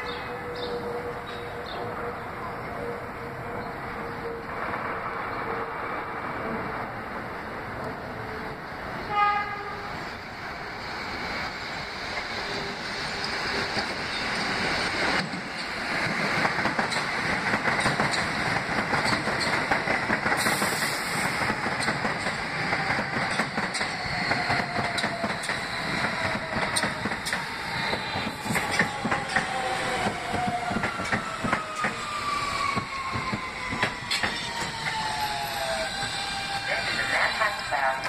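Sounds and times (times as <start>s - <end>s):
train wheels on rails: 0.0s - 38.0s
train horn blast: 9.0s - 10.0s
train brake whine: 20.3s - 21.6s, 23.7s - 38.0s.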